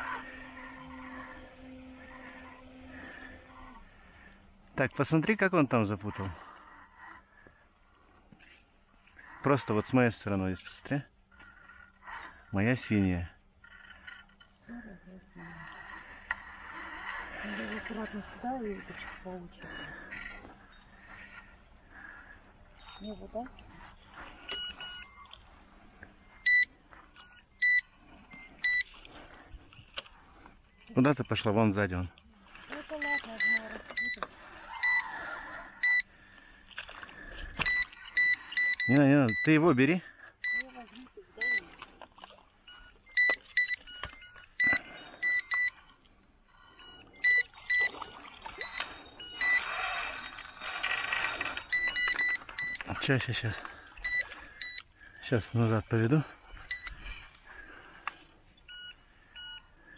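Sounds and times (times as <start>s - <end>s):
bite alarm beeping: 0.0s - 5.3s, 15.8s - 29.0s, 32.8s - 36.2s, 37.6s - 41.8s, 42.6s - 55.5s, 56.2s - 59.9s
water splashing: 15.1s - 59.9s
fainter lower-pitched beep: 19.5s - 21.4s, 22.8s - 23.6s, 24.5s - 25.4s, 26.2s - 29.0s, 32.9s - 35.1s, 35.8s - 36.1s, 37.6s - 39.6s, 40.4s - 40.8s, 41.4s - 41.7s, 42.7s - 45.8s, 46.5s - 53.3s, 54.0s - 54.9s, 56.6s - 57.0s, 58.6s - 59.7s.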